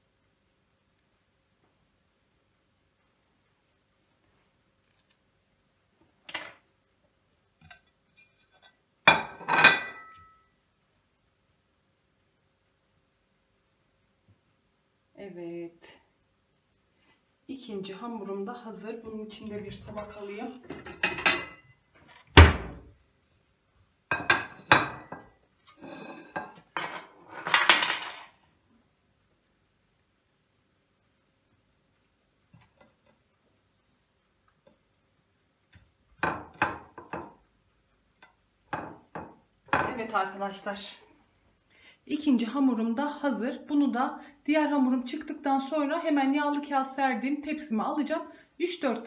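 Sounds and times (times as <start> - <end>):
ceramic plate clinking: 9.1 - 10.5, 20.7 - 21.6, 24.1 - 28.1.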